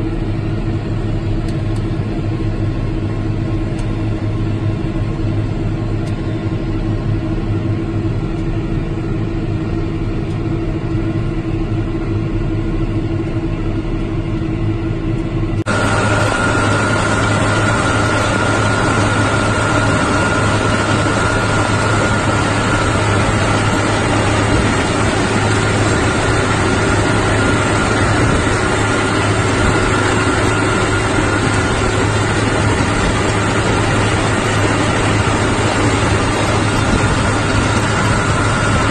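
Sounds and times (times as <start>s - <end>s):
steady high whine: 0.0s - 38.9s
tractor engine running under load: 15.0s - 38.9s.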